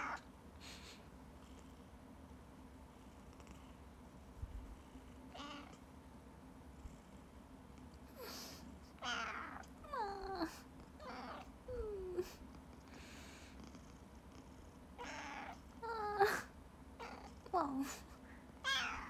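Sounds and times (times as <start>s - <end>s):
cat meowing: 0.0s - 0.2s, 5.4s - 5.8s, 9.0s - 10.4s, 11.0s - 11.5s, 15.0s - 15.6s, 18.6s - 19.0s
cat hissing: 5.3s - 5.7s.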